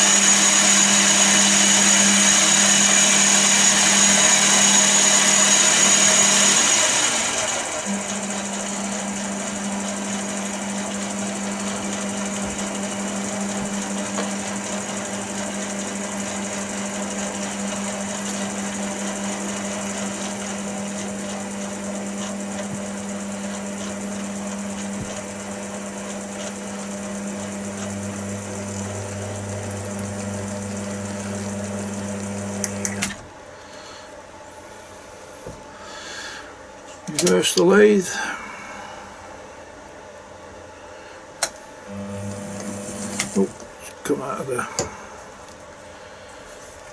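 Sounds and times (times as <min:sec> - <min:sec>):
lathe motor hum: 0:00.0 - 0:33.2, 0:41.9 - 0:43.6.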